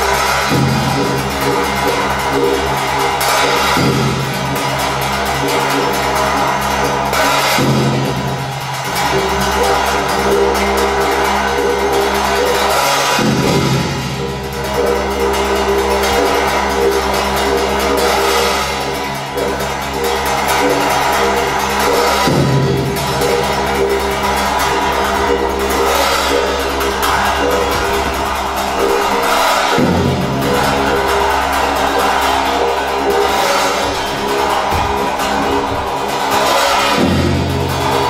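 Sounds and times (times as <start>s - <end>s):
low drone: 13.2s - 38.0s
heavy strike: 22.0s - 38.0s.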